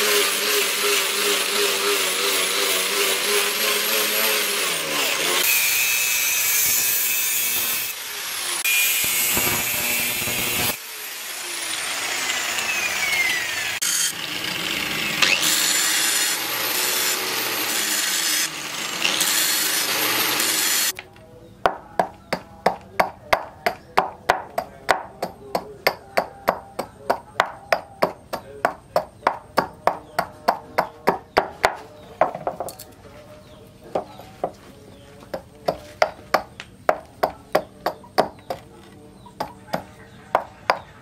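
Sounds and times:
angle grinder sanding wood: 0.0 - 21.0.

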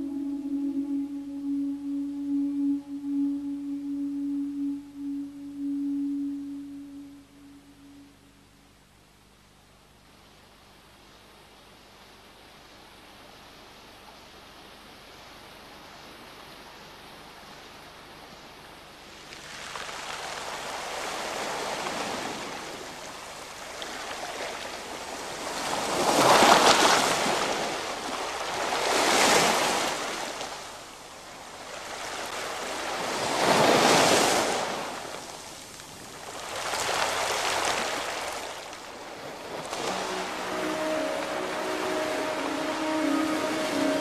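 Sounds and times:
waves washing on pebble shore: 31.6 - 41.9.

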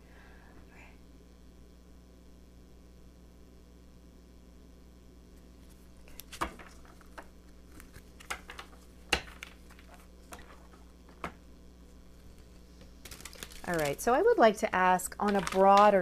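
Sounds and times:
low room hum: 0.0 - 16.0
cards shuffling and tapping: 5.6 - 11.4, 15.2 - 16.0.

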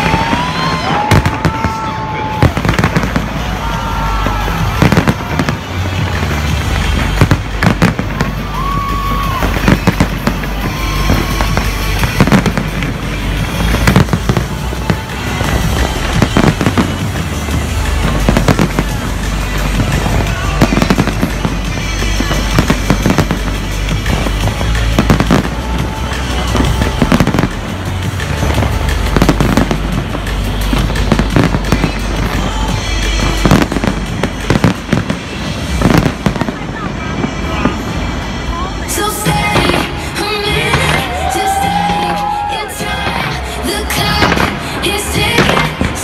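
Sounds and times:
fireworks bursting with bangs: 0.0 - 46.0
music with steady bass line: 2.5 - 36.1.

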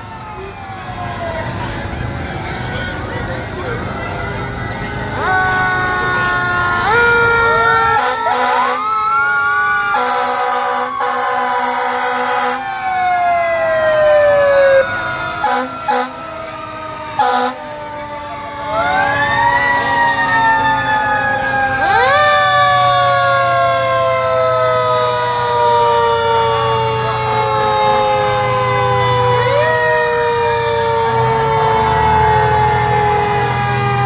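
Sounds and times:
fire truck siren wailing: 0.0 - 34.0
truck engine rumble: 0.0 - 34.0
truck horn blasts: 5.1 - 7.3, 8.0 - 8.8, 15.4 - 16.3, 17.2 - 17.7.

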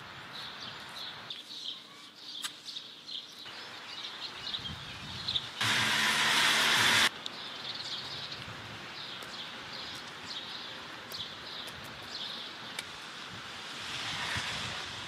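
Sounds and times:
small birds chirping: 0.0 - 5.6, 7.2 - 13.0.

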